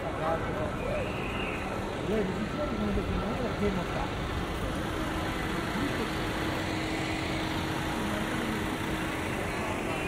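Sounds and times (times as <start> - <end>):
crowd noise: 0.0 - 10.0
distant traffic: 0.0 - 10.0
faint voices: 0.0 - 10.0.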